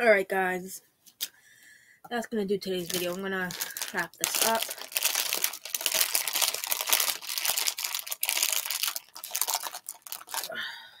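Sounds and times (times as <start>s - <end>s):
plastic chip bag crinkling: 2.7s - 10.6s.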